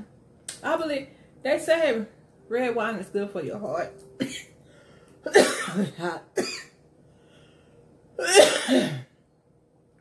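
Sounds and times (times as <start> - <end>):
woman coughing: 4.2 - 4.5, 5.3 - 6.8, 8.2 - 9.1.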